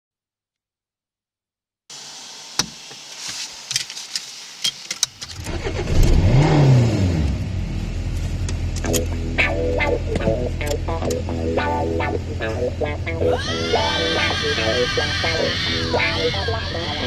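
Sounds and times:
car engine starting and idling: 0:05.1 - 0:17.0
ignition key clicks: 0:08.5 - 0:09.2, 0:10.2 - 0:11.2.

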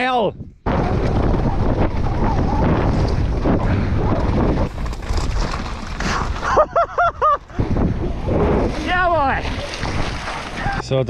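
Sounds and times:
wind buffeting microphone: 0:00.2 - 0:11.0
bike rattling: 0:00.6 - 0:10.9
bike tyres crunching on gravel: 0:01.0 - 0:06.8.

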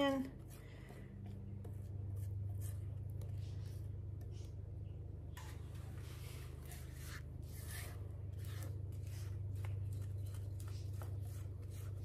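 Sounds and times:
spatula scraping a bowl: 0:06.0 - 0:12.0.

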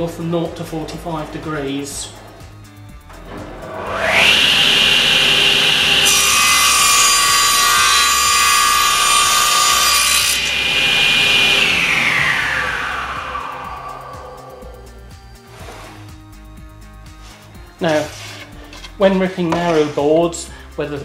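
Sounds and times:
table saw whine: 0:00.0 - 0:16.3, 0:17.1 - 0:20.0
saw blade cutting wood: 0:03.1 - 0:14.3, 0:17.1 - 0:20.2.

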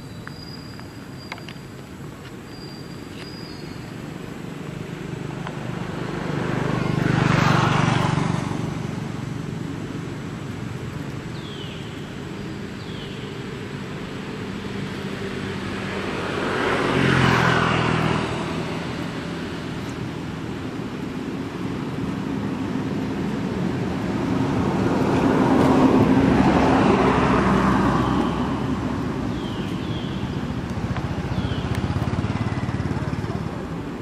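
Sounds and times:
motor vehicles passing: 0:00.0 - 0:34.0.

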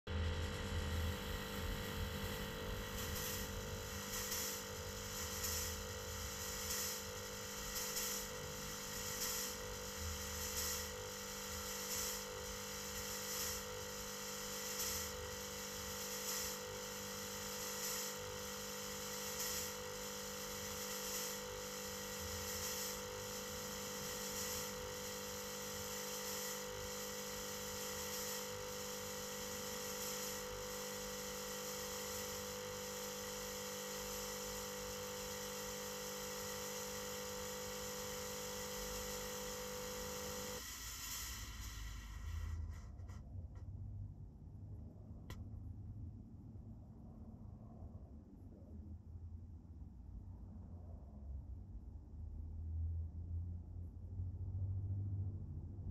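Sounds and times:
fogging machine humming: 0:00.1 - 0:42.7.

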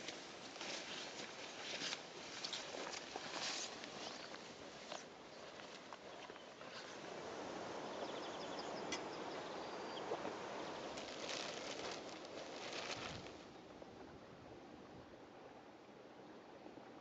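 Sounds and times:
outdoor rustling: 0:00.0 - 0:13.9
plastic sack crackling: 0:10.6 - 0:13.5.

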